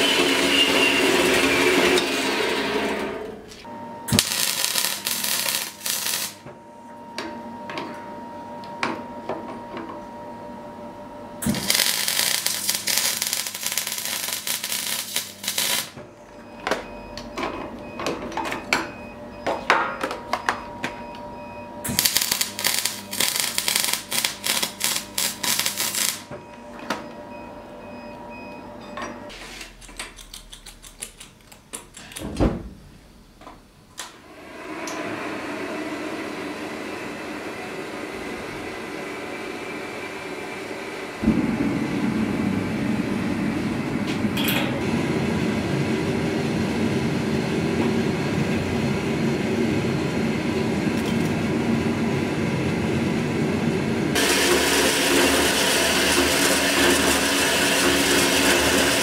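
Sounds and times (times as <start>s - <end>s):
welding arc crackling: 4.1s - 6.4s, 11.4s - 16.0s, 21.9s - 26.3s, 54.1s - 59.0s.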